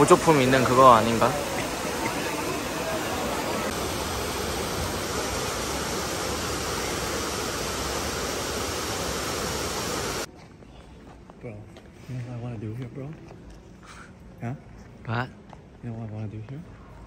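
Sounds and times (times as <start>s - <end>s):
fountain water falling: 0.0s - 10.3s.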